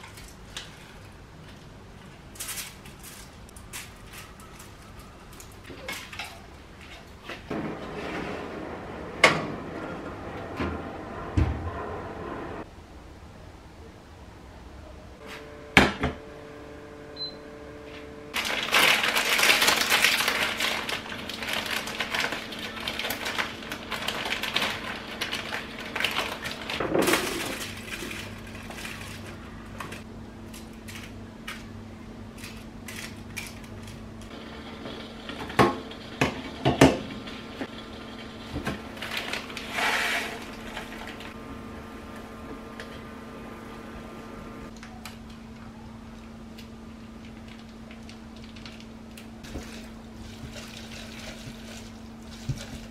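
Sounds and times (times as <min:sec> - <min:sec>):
loud rustling and crackling: 0:18.3 - 0:30.1
steady low hum: 0:25.9 - 0:52.9.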